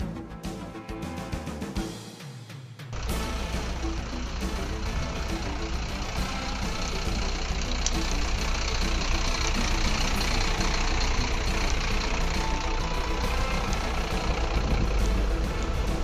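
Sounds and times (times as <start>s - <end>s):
vehicle engine idling: 3.0s - 16.0s.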